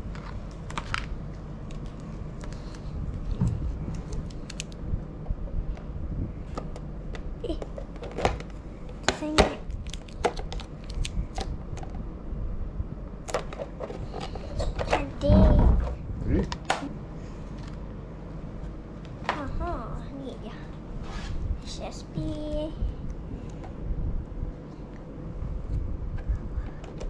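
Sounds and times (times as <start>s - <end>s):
steady low hum: 0.0s - 27.0s
small clicks crinkles and taps: 0.1s - 4.8s, 6.6s - 12.0s.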